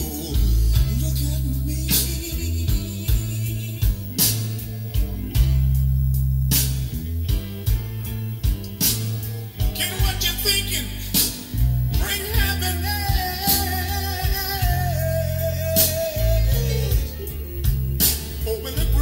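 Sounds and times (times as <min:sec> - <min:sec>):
rock song with singer: 0:00.0 - 0:19.0.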